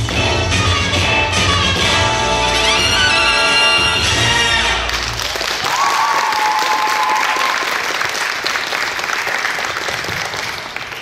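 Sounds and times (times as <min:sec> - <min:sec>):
backing music: 0:00.0 - 0:05.3
audience applause: 0:04.8 - 0:11.0.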